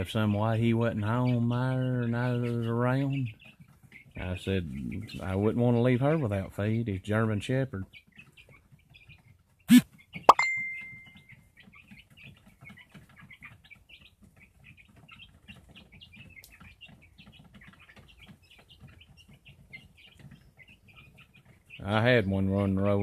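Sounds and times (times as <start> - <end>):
chicks peeping and clucking: 0.0 - 23.0
sharp ringing clang: 10.3 - 11.2.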